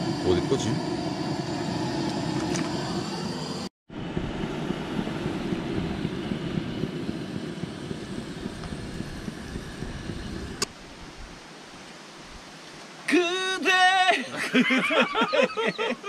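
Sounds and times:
camp stove burner roaring: 0.0 - 11.1.

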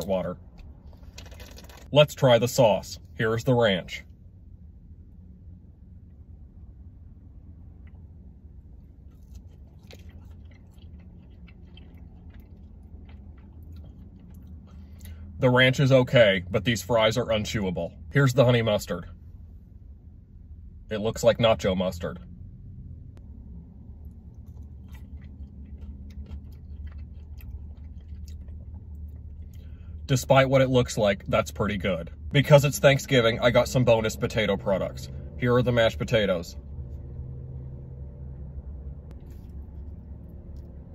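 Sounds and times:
person chewing crunchy fries: 0.0 - 1.9, 7.6 - 15.4, 23.7 - 30.1, 39.1 - 40.9
low steady hum: 0.0 - 40.9.

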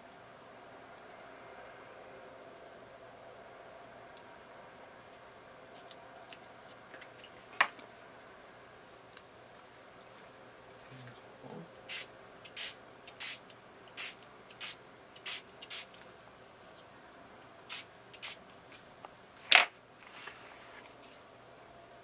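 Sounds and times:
spray bottle misting: 11.9 - 13.4, 14.0 - 15.9, 17.7 - 18.4.

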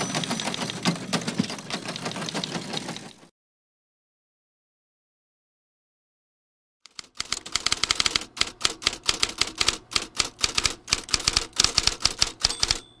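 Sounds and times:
typewriter keys clacking: 0.0 - 3.2, 6.9 - 13.0.

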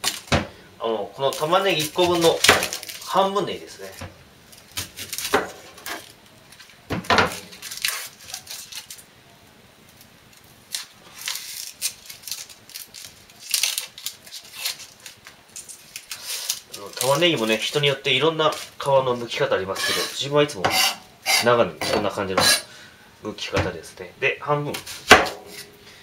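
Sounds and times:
onion skin crackling as peeled: 1.1 - 21.6.

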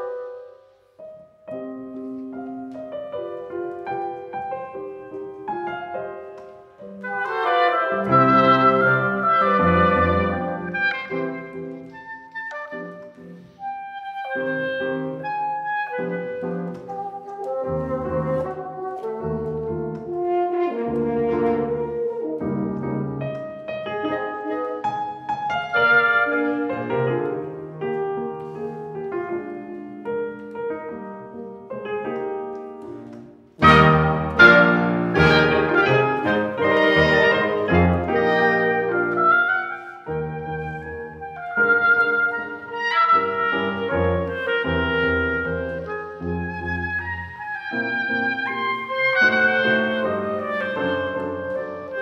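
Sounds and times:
clarinet: 0.0 - 52.0
piano: 0.0 - 52.0
french horn: 6.4 - 12.8, 13.6 - 27.4, 33.6 - 52.0.

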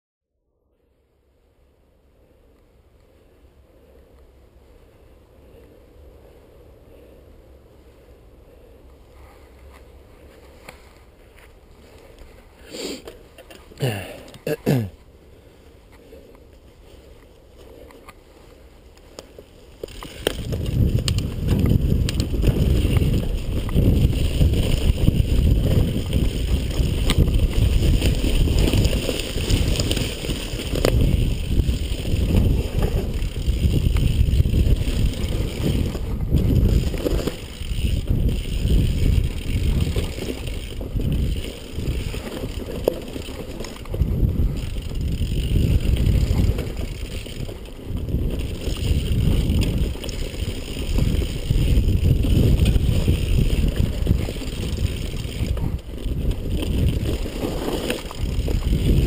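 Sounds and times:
bike rattling over ground: 16.9 - 59.0
wind buffeting microphone: 19.9 - 59.0.

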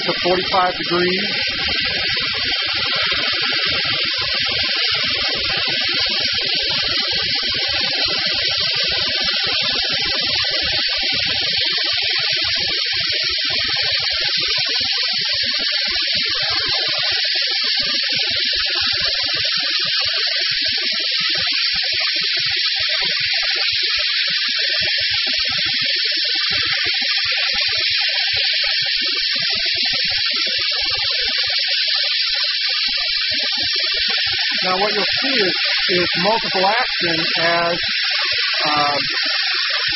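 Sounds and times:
waterjet high hiss: 0.0 - 9.3, 34.2 - 39.9.

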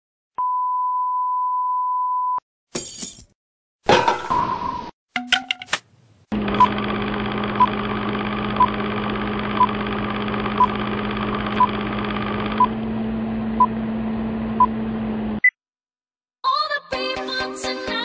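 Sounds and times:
projector whirr: 6.4 - 13.5.

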